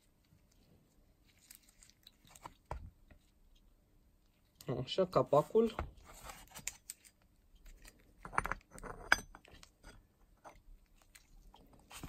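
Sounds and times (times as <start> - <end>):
metal cover clinks and knocks: 8.2 - 10.6.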